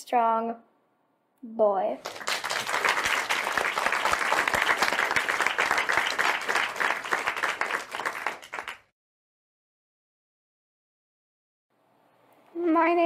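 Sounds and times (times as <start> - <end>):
crowd applauding: 2.0 - 8.9.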